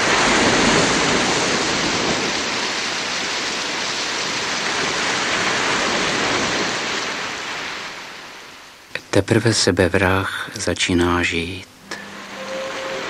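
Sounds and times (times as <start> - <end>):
sea waves washing in: 0.0 - 8.9, 11.7 - 13.0.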